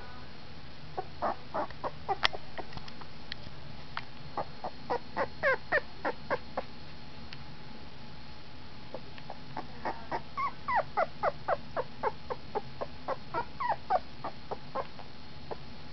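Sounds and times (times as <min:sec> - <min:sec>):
puppy whimpering: 0:01.0 - 0:02.8, 0:04.4 - 0:06.7, 0:08.9 - 0:15.0.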